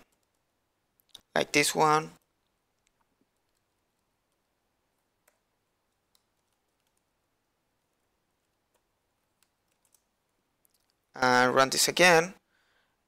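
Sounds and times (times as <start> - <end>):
faint keyboard keystrokes: 2.2 - 7.2, 7.8 - 11.0.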